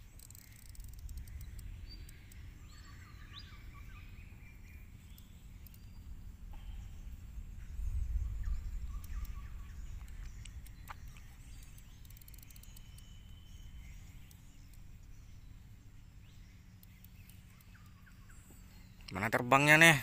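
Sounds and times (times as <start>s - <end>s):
wind rumble on microphone: 0.0s - 16.5s
faint bird chirps: 0.0s - 20.0s
insect trill: 0.0s - 20.0s.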